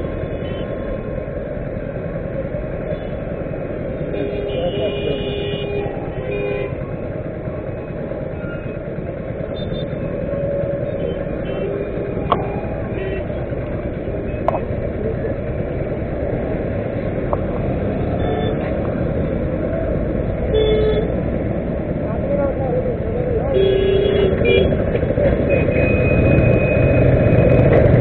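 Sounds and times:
idling motorcycles and traffic rumble: 0.0s - 28.0s
distant car horns: 25.4s - 27.6s.

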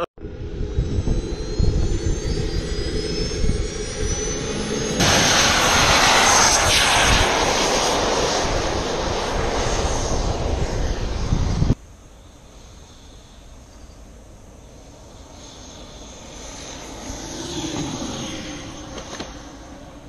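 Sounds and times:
wind rumble on microphone: 0.0s - 11.8s
jet turbine whine rising: 0.0s - 20.0s.

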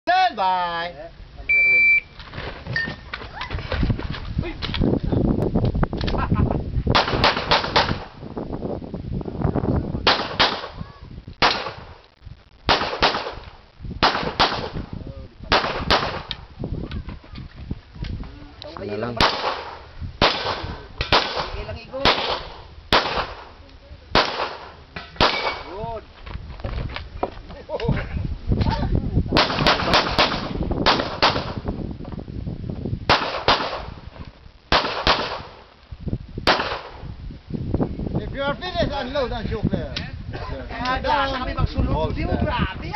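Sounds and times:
pistol shots with echo: 10.0s - 10.8s, 12.7s - 13.4s, 14.0s - 14.8s, 15.5s - 16.4s, 19.2s - 23.5s, 24.2s - 25.7s, 29.4s - 31.6s, 33.1s - 34.0s, 34.7s - 35.6s, 36.5s - 37.0s
handgun shots: 24.2s - 25.7s, 29.4s - 31.6s, 34.7s - 35.6s, 36.5s - 37.0s.

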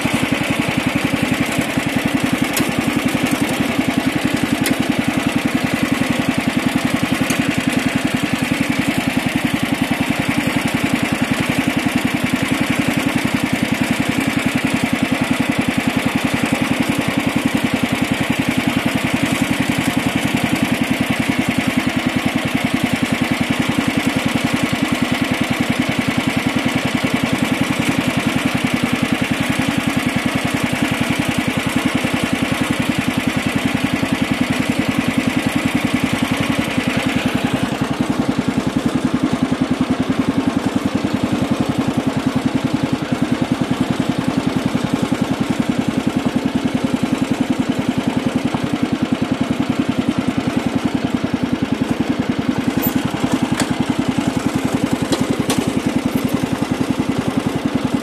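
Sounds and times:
lawn tractor engine running: 0.0s - 58.0s.

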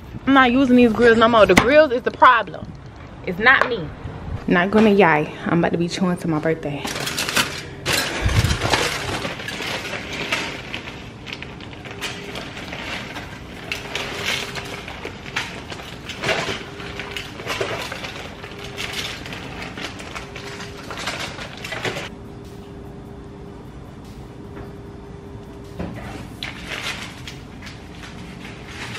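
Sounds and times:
aluminum foil crinkling: 6.8s - 22.1s, 26.1s - 28.9s.

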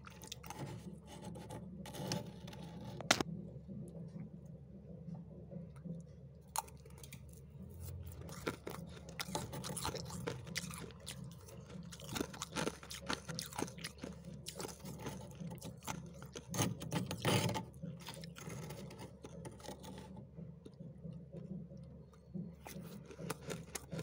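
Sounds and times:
frost and ice crunching: 8.1s - 20.1s.

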